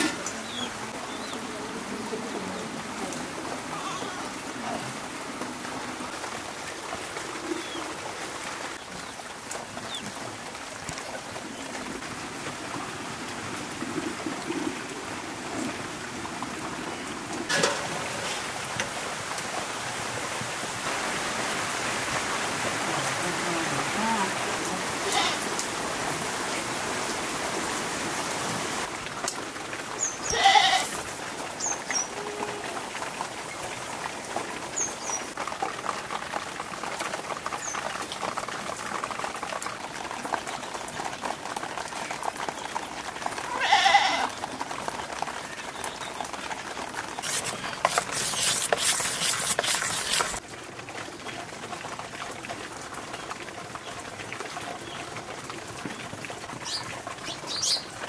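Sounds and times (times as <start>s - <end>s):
rain hissing: 0.0s - 40.8s, 45.8s - 50.8s
goat bleating: 25.0s - 25.4s, 30.3s - 31.0s, 43.5s - 44.3s.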